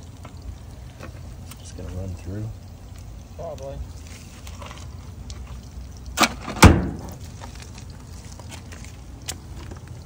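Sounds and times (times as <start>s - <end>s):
metal filter clanking on ground: 3.4s - 10.0s.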